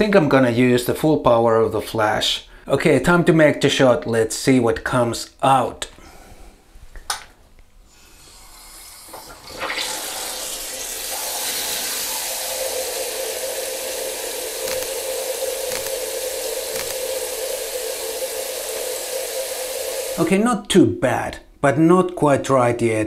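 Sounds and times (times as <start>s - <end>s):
shower spraying into bucket of water: 8.4s - 20.3s.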